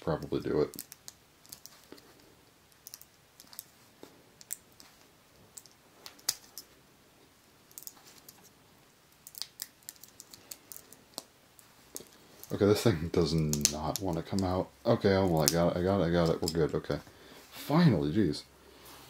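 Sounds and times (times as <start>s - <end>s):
small plastic clicks and snaps: 0.2s - 3.7s, 4.4s - 6.7s, 7.7s - 8.4s, 9.1s - 12.6s, 13.4s - 14.6s.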